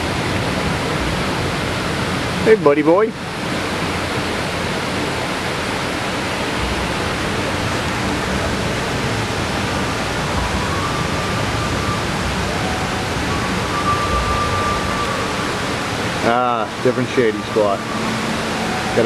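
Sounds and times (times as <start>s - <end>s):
steady rushing noise: 0.0s - 19.0s
faint thin high tone: 10.4s - 16.4s.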